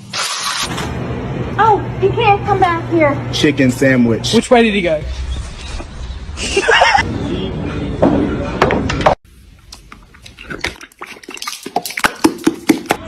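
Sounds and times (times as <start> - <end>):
horse mouthing plastic bottle: 9.5 - 13.0.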